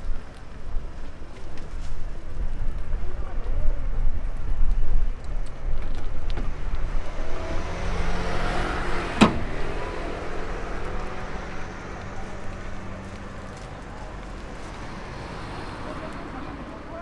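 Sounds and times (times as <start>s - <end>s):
street traffic rumble: 0.0s - 17.0s
car passing: 5.0s - 17.0s.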